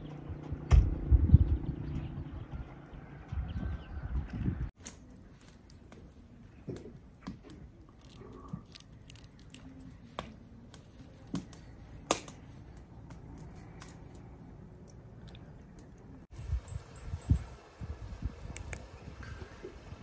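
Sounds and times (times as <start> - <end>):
herb stems snapping: 4.8 - 16.0, 18.4 - 18.9.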